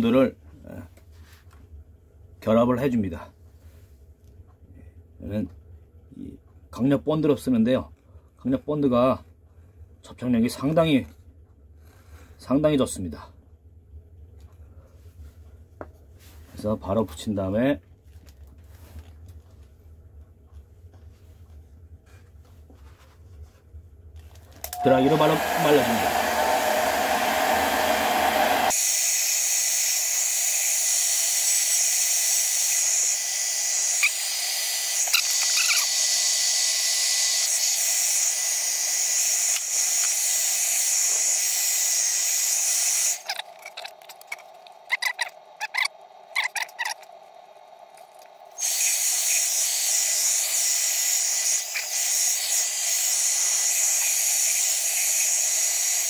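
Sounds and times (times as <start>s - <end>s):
hair dryer blowing: 24.6s - 30.1s.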